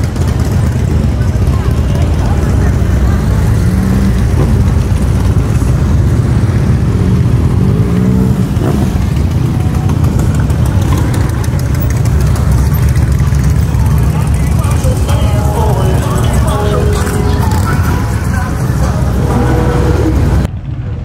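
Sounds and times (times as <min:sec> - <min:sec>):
motorcycle revving: 0:00.0 - 0:20.8
motorcycle engines rumbling: 0:00.0 - 0:21.0.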